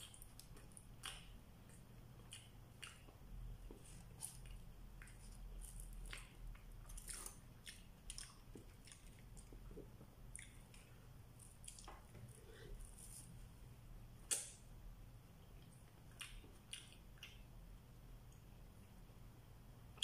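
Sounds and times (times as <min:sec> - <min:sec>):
chewing: 0:00.0 - 0:13.4, 0:15.5 - 0:17.5
low steady hum: 0:00.0 - 0:20.0.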